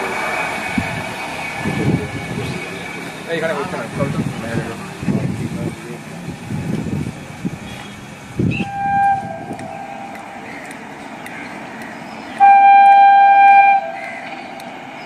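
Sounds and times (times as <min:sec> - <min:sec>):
train horn blasts: 0:08.5 - 0:10.1, 0:12.4 - 0:14.1.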